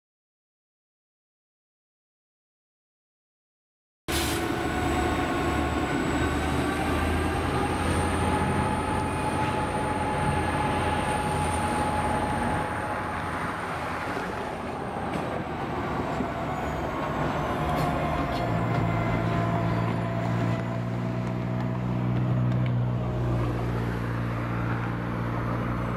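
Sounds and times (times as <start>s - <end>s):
diesel locomotive engines droning: 4.1s - 25.9s
thin high whine: 7.2s - 20.9s.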